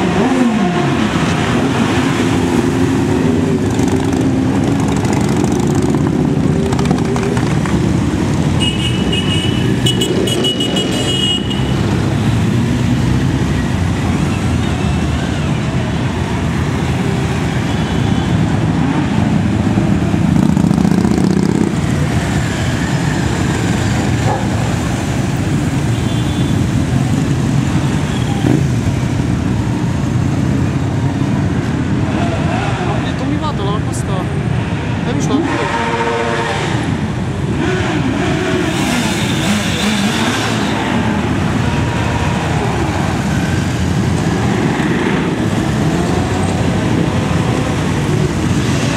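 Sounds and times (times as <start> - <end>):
motorcycles riding past: 0.0 - 33.2
high horn toot: 8.6 - 11.8, 35.4 - 37.0.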